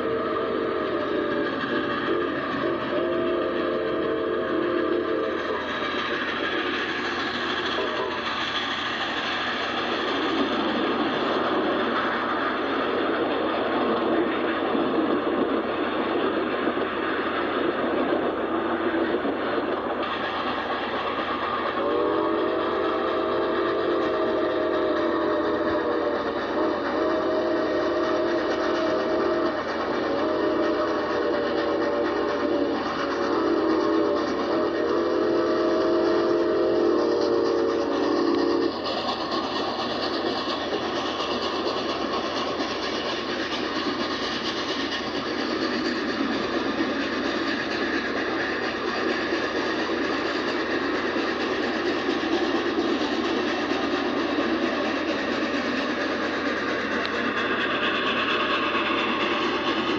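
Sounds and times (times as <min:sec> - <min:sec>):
steam whistle blowing: 0:00.0 - 0:05.6, 0:21.8 - 0:38.7
train wheels rushing on rail: 0:00.0 - 0:59.9.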